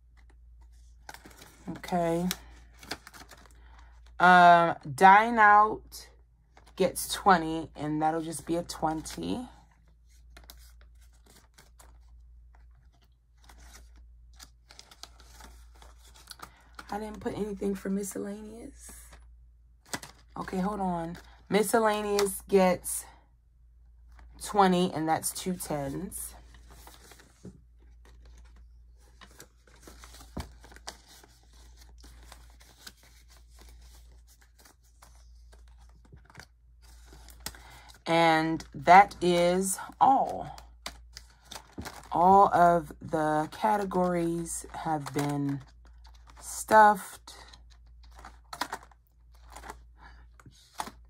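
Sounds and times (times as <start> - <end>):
paper banknotes rustling: 0.1 - 3.9, 10.0 - 18.2, 25.3 - 42.1, 43.4 - 51.0.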